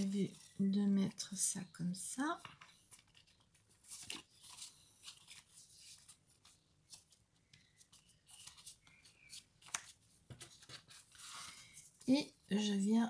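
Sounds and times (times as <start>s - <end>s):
paper rustling and scraping: 2.8s - 11.8s.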